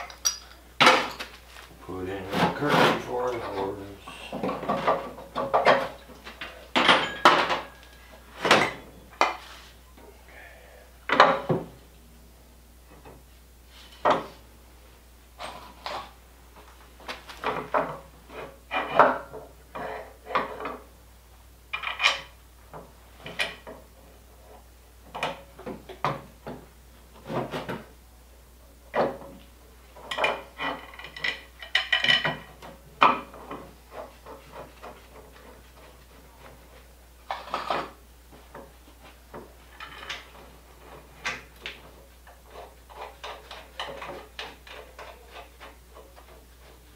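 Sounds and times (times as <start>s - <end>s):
metal clanking and knocking: 6.7s - 7.8s.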